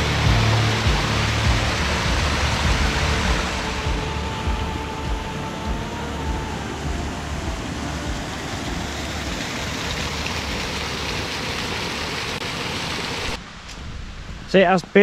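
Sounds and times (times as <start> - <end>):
faint musical tone: 0.0 - 9.4
low rumble: 0.0 - 11.0, 13.3 - 15.0
small stream rushing: 0.0 - 13.5.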